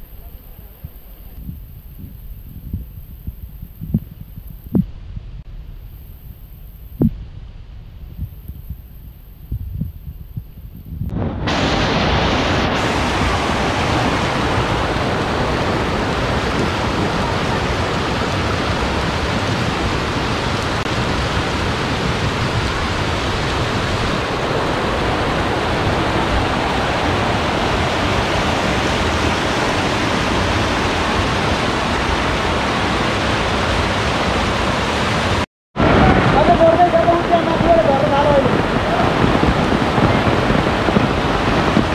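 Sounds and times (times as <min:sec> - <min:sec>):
floodwater rushing: 0:11.4 - 0:41.9.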